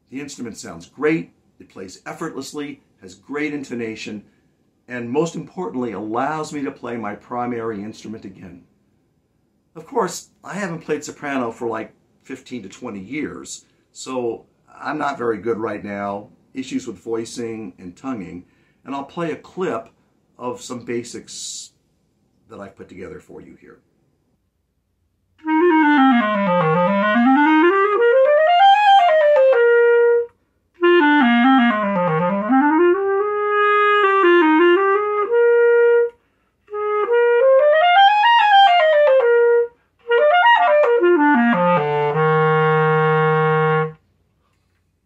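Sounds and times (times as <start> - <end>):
clarinet playing scales: 25.4 - 44.0.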